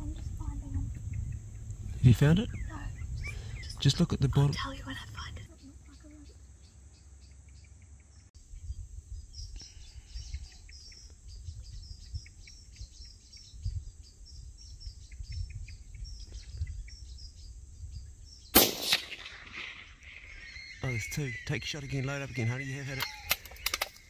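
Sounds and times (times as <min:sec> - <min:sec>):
birds chirping: 0:00.0 - 0:24.0
rifle shot with echo: 0:18.6 - 0:19.9.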